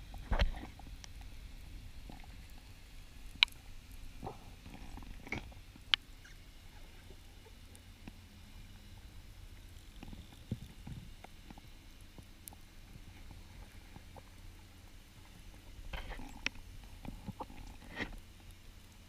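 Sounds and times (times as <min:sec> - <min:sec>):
underwater rumble of moving water: 0:00.0 - 0:19.0.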